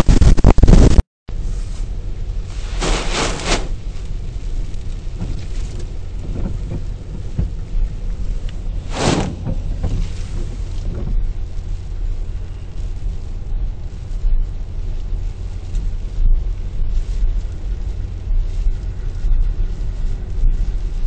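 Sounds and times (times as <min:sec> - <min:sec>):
storm wind rumbling on microphone: 0:00.0 - 0:21.0
surf breaking: 0:02.4 - 0:03.9, 0:04.5 - 0:11.8.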